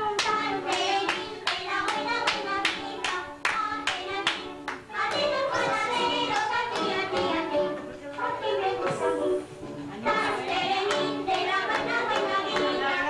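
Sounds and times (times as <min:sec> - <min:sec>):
music with singing: 0:00.0 - 0:13.0
people clapping in time: 0:00.1 - 0:07.5, 0:10.2 - 0:13.0.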